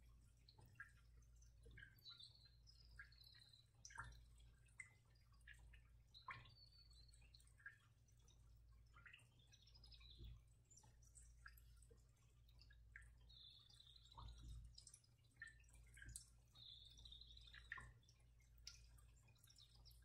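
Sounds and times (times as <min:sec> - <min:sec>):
drip-like ticks: 0:00.0 - 0:20.0
faint high chirps: 0:15.4 - 0:20.0.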